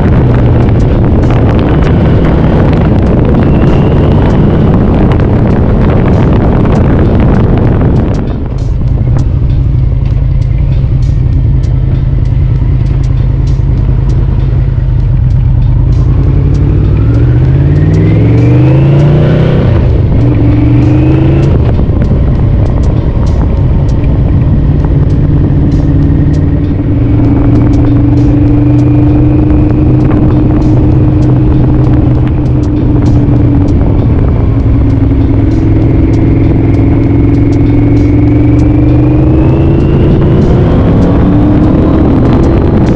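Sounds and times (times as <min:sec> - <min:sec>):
motorcycle engine revving: 0:00.0 - 0:42.9.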